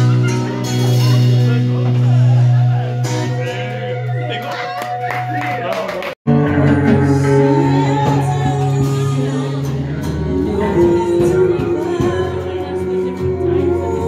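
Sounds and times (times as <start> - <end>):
drums: 0.0 - 14.0
guitar: 0.0 - 14.0
woman singing: 6.3 - 14.0.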